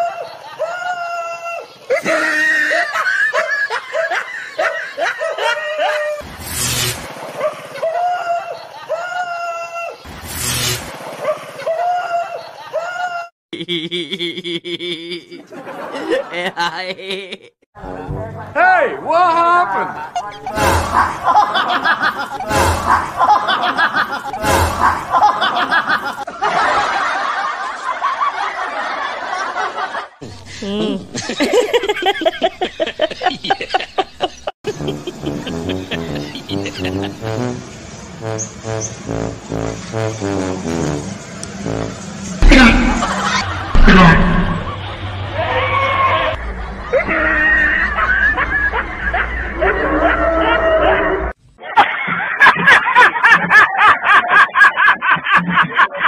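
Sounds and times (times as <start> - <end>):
high-pitched laughter: 0.0 - 6.2, 7.4 - 10.0, 11.3 - 17.6, 19.8 - 37.4, 42.4 - 44.8, 46.8 - 56.0.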